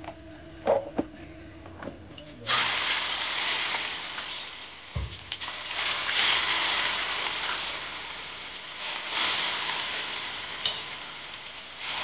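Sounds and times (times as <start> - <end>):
potatoes sizzling in frying oil: 2.5 - 12.0.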